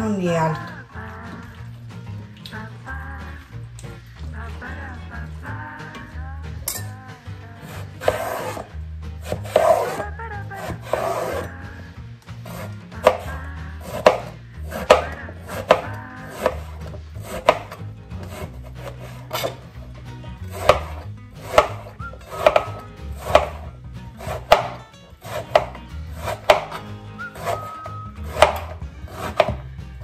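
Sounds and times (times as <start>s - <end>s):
knife chopping on cutting board: 7.6s - 11.5s, 12.4s - 19.7s, 20.4s - 29.8s.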